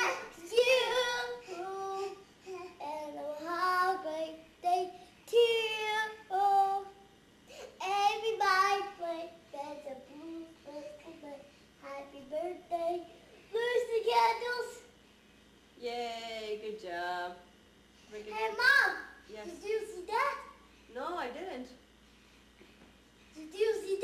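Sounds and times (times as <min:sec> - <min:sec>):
child singing: 0:00.0 - 0:02.2, 0:02.8 - 0:07.0, 0:07.8 - 0:14.8.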